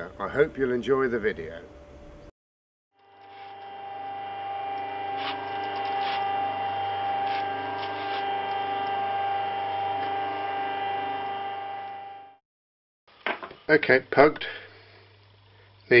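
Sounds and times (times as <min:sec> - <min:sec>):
pug mill motor whine: 0:03.0 - 0:12.4
short scrapes: 0:04.8 - 0:09.0.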